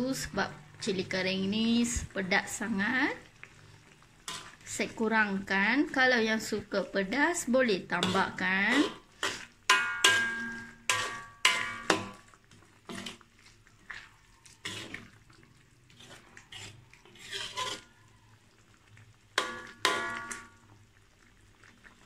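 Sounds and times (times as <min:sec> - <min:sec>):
metal spoon clanking against wok: 0:08.0 - 0:12.2, 0:19.4 - 0:20.5.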